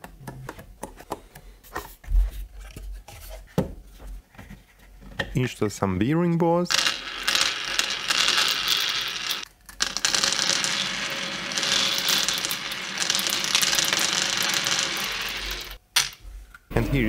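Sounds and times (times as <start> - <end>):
steel balls rattling on plastic track: 6.7 - 16.2.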